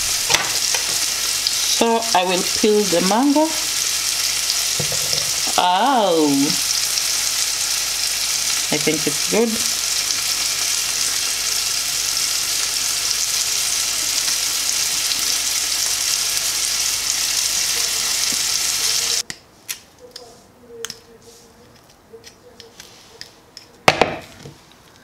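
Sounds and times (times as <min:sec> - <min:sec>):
chicken sizzling in a pan: 0:00.0 - 0:19.2.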